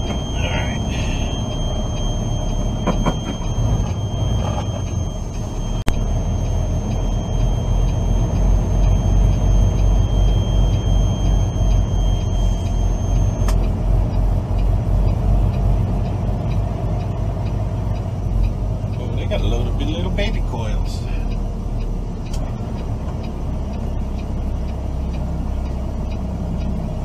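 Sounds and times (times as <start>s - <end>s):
thin high whine: 0.0s - 13.6s
truck engine and road rumble: 0.0s - 27.0s
sharp click: 12.6s - 13.7s.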